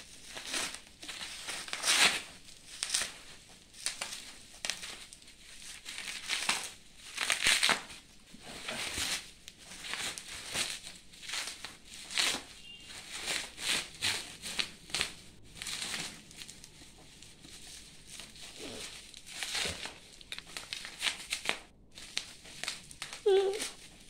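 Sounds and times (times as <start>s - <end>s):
bubble wrap crinkling and crackling: 0.0s - 24.0s.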